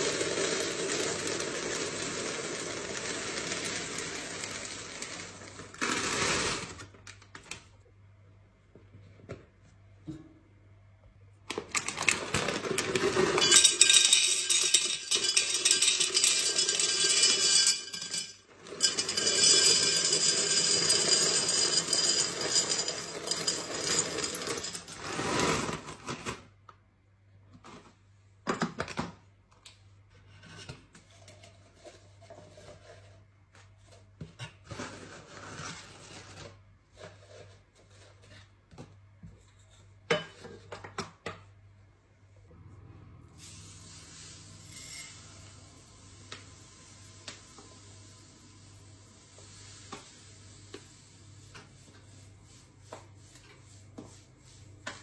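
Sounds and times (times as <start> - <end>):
dry pasta pouring into canister: 0.0 - 6.9.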